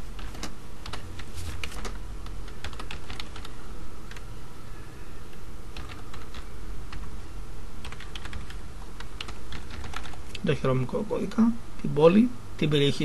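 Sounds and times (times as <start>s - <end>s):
low background hum: 0.0s - 13.0s
typing on computer keyboard: 0.2s - 4.2s, 5.8s - 7.1s, 7.8s - 10.3s.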